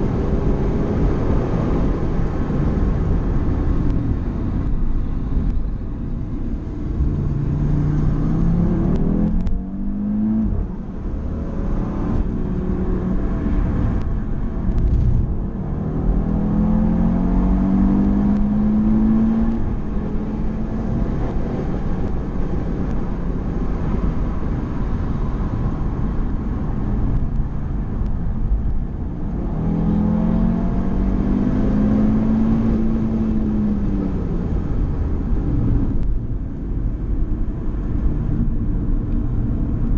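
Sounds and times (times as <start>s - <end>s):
tyre and wind rumble: 0.0s - 18.7s
car engine accelerating: 0.0s - 39.9s.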